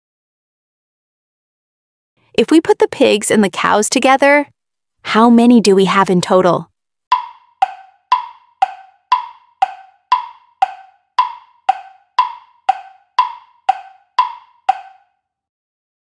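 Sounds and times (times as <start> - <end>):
countdown timer ticking: 7.1 - 15.1.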